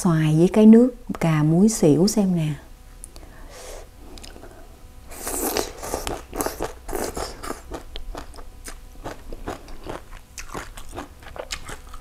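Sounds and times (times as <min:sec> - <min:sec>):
person chewing crunchy food: 0:04.1 - 0:12.0.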